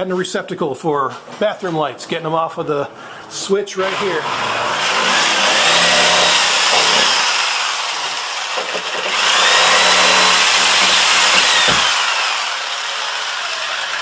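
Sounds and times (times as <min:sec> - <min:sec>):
reciprocating saw cutting drywall: 0:03.8 - 0:14.0.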